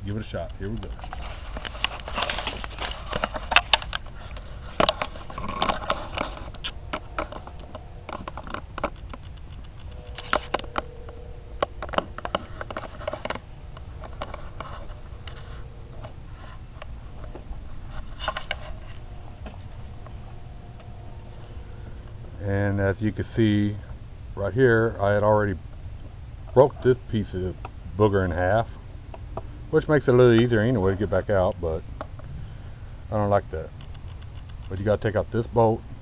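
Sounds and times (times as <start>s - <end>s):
low steady rumble: 0.0s - 36.0s
phone handling scrapes and clicks: 0.8s - 11.0s.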